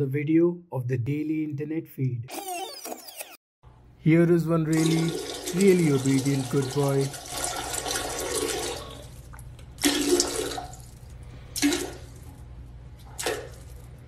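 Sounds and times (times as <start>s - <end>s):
water rushing into toilet bowl: 4.7s - 11.0s, 11.6s - 12.1s.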